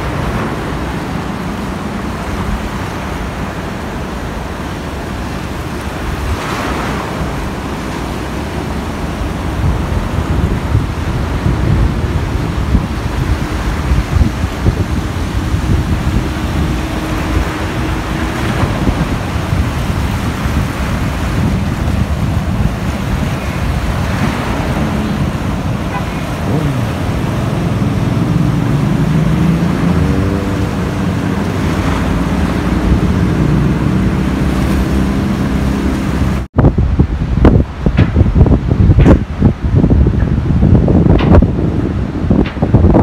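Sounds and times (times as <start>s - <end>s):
engine hum: 0.0s - 43.0s
sea waves against rocks: 0.0s - 43.0s
wind buffeting microphone: 0.0s - 43.0s.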